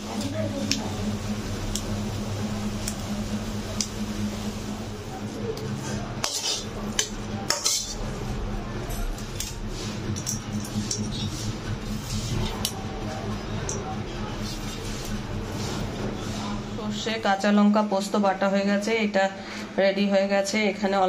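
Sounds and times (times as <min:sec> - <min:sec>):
low hum: 0:00.0 - 0:18.5
metal utensil scraping pan: 0:06.2 - 0:08.0.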